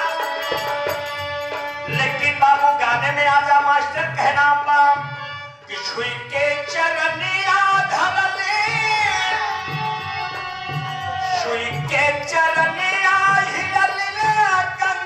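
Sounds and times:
hand drum beat: 0:07.8 - 0:15.0
man singing folk song: 0:11.1 - 0:15.0.

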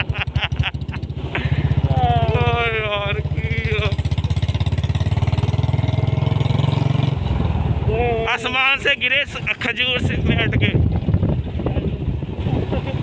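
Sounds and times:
motorcycle engine thudding exhaust: 0:00.0 - 0:07.9.

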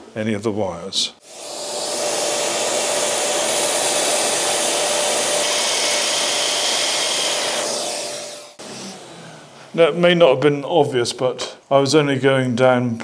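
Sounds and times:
dust extractor running: 0:01.2 - 0:09.2.

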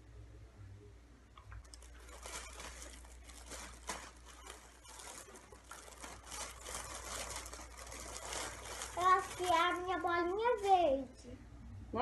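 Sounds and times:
cloth bag rustling: 0:01.6 - 0:11.1.

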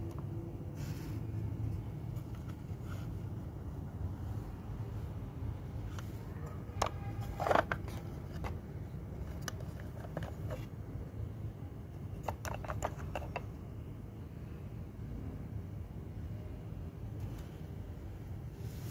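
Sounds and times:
steady low hum: 0:00.0 - 0:18.9
plastic toys clicking: 0:06.7 - 0:08.6, 0:12.2 - 0:13.5.

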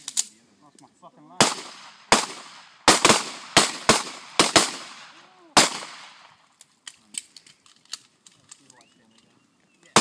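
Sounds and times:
pistol shots: 0:01.4 - 0:06.3.

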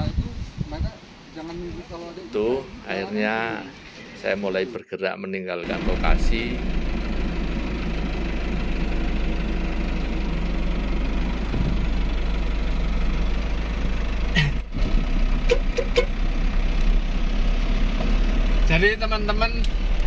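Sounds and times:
vehicle engine low hum: 0:05.6 - 0:20.0.

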